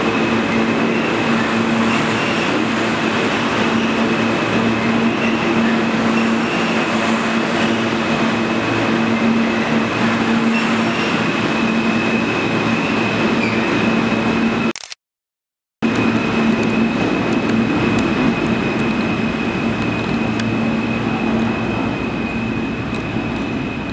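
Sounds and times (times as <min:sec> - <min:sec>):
subway train wheels rumbling: 0:00.0 - 0:14.7, 0:15.8 - 0:23.9.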